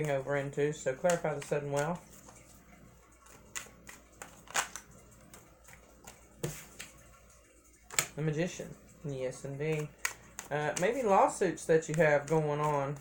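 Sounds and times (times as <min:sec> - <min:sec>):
cards tapping and snapping: 0:00.9 - 0:02.5, 0:03.2 - 0:07.1, 0:07.8 - 0:08.2, 0:09.6 - 0:13.0.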